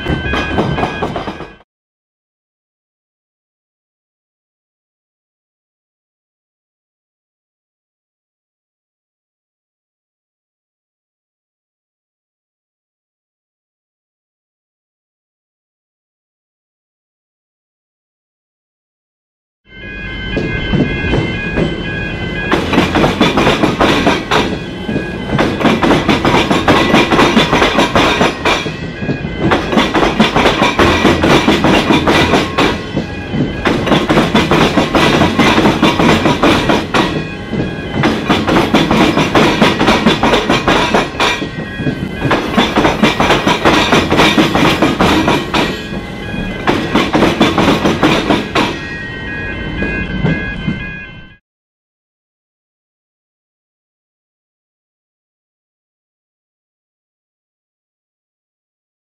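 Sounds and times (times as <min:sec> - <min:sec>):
level-crossing bells ringing: 0:00.0 - 0:01.6, 0:19.7 - 0:51.4
train wheels clattering over rails: 0:00.0 - 0:01.6, 0:20.2 - 0:51.0.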